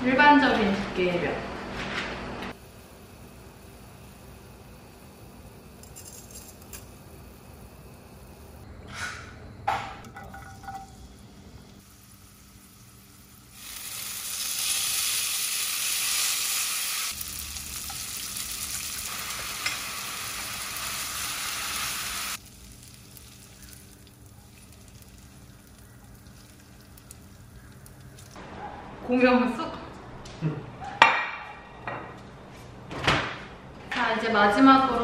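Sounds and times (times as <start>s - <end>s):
oil sizzling in a frying pan: 10.2s - 28.4s.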